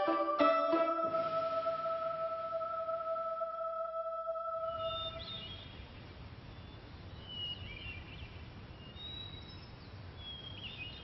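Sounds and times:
small birds chirping: 4.8 - 11.0.

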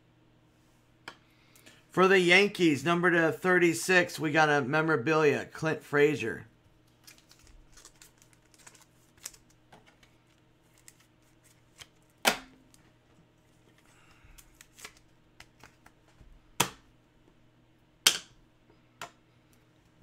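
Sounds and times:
faint steady hum: 0.0 - 20.0
cards rustling and tapping: 6.9 - 16.8.

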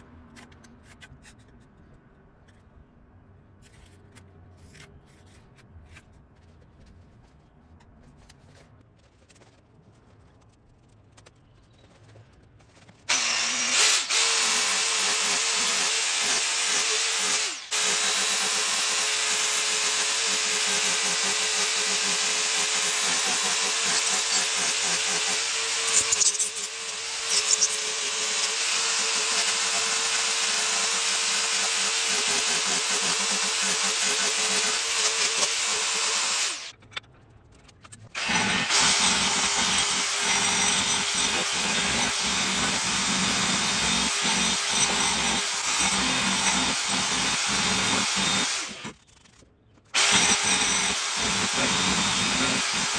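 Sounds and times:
angle grinder grinding wood: 13.1 - 36.7, 38.1 - 49.0, 50.0 - 52.9.

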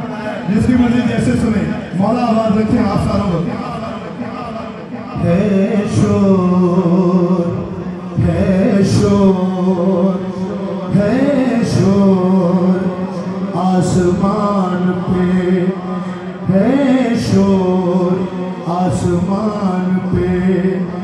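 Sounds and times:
man chanting into a microphone: 0.0 - 21.0.

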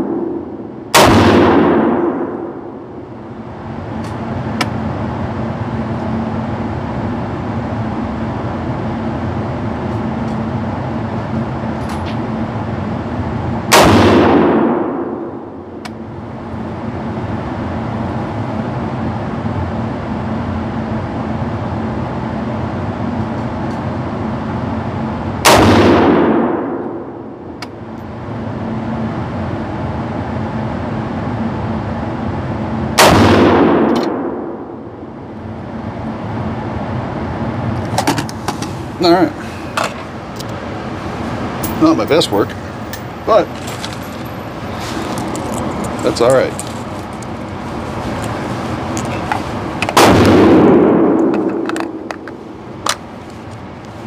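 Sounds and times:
rifle shots indoors: 0.0 - 2.8, 13.7 - 15.4, 25.4 - 27.3, 33.0 - 34.9
steady hum: 0.0 - 54.0.

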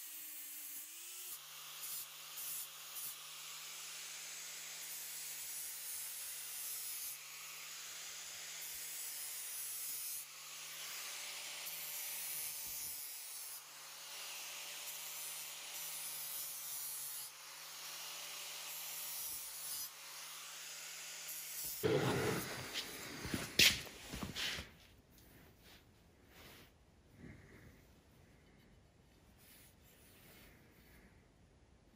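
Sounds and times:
angle grinder grinding steel: 18.7 - 23.8.

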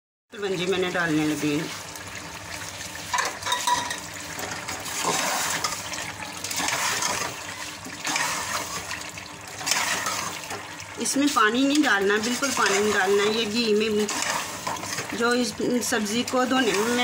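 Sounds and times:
vegetables sizzling in pot: 0.4 - 17.0
ladle scraping pot: 3.1 - 10.7, 11.7 - 15.3.

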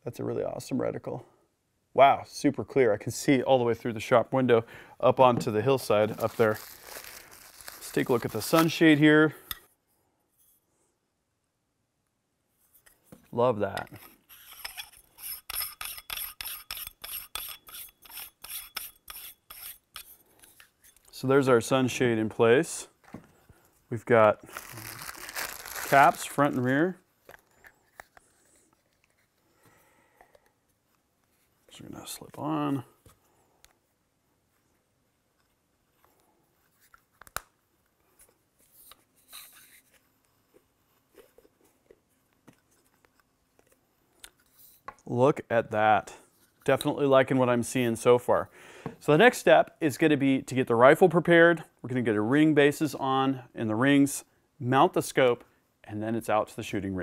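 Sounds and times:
threads rasping: 13.8 - 21.1.

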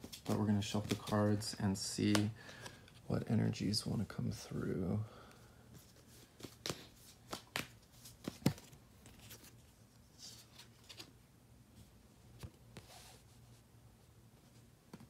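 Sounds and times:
cards rustling: 0.0 - 4.4, 5.7 - 11.2
cards snapping and tapping: 6.4 - 8.8.

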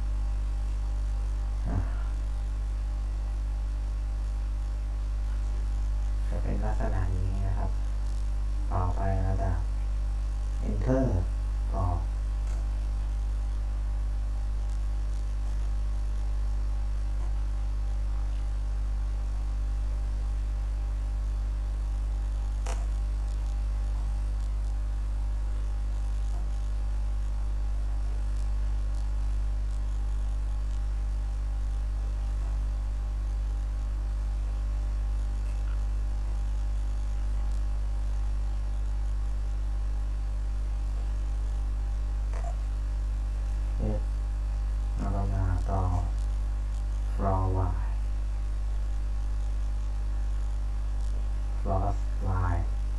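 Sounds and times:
electrical mains hum: 0.0 - 52.9
click: 12.4 - 12.7, 22.6 - 23.6.

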